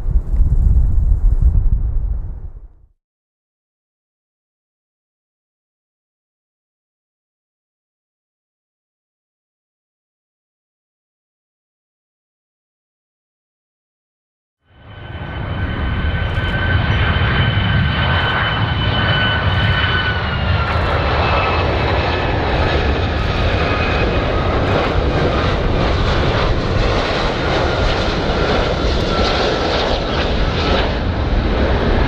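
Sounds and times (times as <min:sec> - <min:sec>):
jet engine whine: 0:14.7 - 0:32.0.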